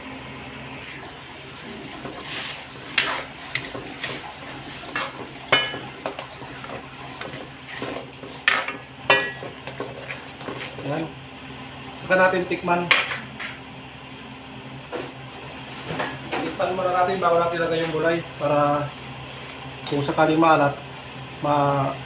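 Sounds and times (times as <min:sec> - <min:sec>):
ladle scraping and clanking in wok: 0:02.1 - 0:10.9.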